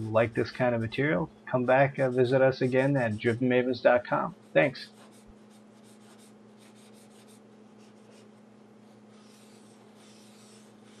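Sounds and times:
steady low hum: 0.0 - 11.0
soft scratching and rubbing: 1.7 - 3.5, 4.1 - 11.0.

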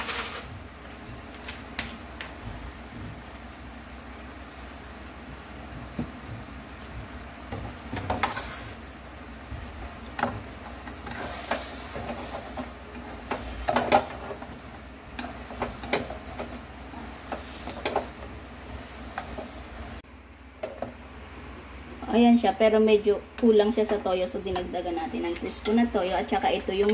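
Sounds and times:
noodles sizzling in a wok: 0.0 - 20.0.

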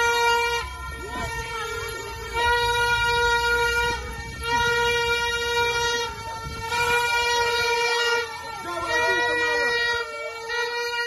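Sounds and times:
horn blasts: 0.0 - 11.0.

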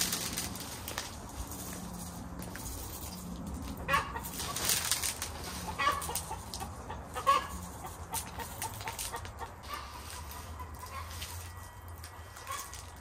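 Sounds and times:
granules scattering onto soil: 0.0 - 6.6.

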